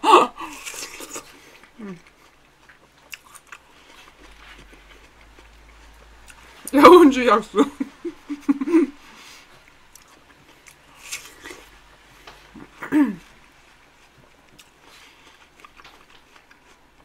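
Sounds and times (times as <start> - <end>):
chewing watermelon: 0.4 - 6.8, 9.0 - 17.0.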